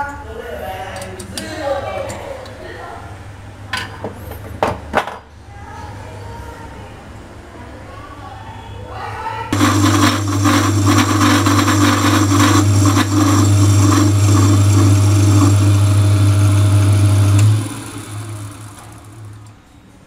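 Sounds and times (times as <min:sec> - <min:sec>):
lathe clatter: 0:09.6 - 0:19.5
metal lathe motor humming: 0:09.6 - 0:19.6.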